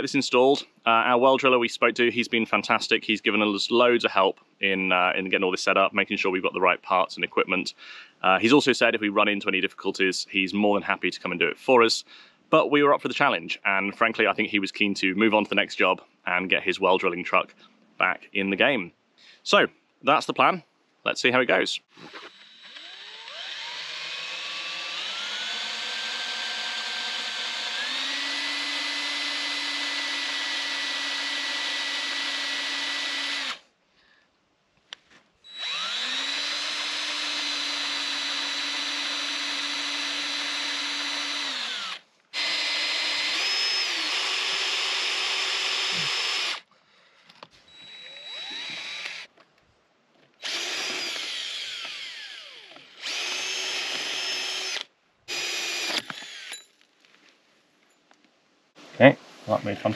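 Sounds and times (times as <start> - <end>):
drill cutting into steel: 22.0 - 33.6, 35.5 - 46.7, 47.7 - 49.3, 50.4 - 56.7.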